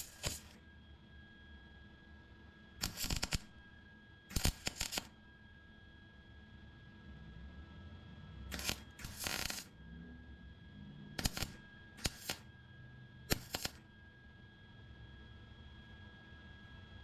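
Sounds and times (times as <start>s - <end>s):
welder arc crackling: 0.0s - 0.6s, 2.8s - 3.5s, 4.3s - 5.1s, 8.5s - 9.7s, 11.2s - 12.4s, 13.3s - 13.8s.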